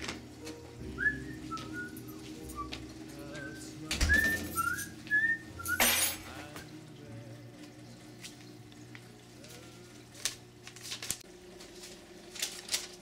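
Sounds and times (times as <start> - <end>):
person whistling a tune: 0.8 - 5.9.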